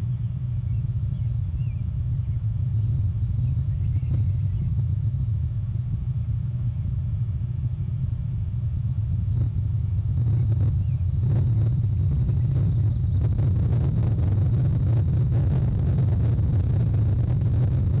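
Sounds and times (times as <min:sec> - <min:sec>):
steady low rumble: 0:00.0 - 0:18.0.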